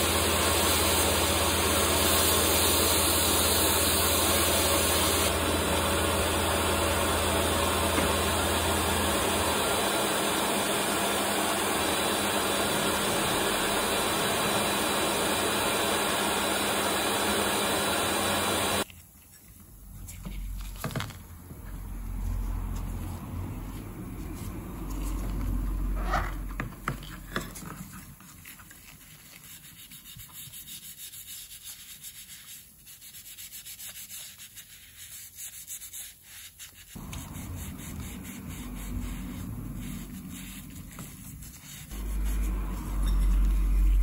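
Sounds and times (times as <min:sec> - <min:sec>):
wet sponge scrubbing metal: 0:21.7 - 0:44.0.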